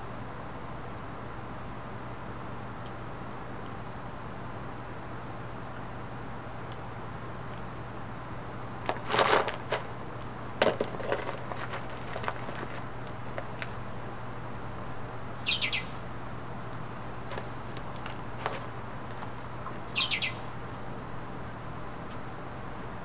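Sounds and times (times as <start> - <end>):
steady low hum: 0.0 - 23.0
high falling squeak: 15.4 - 16.0, 19.9 - 20.4.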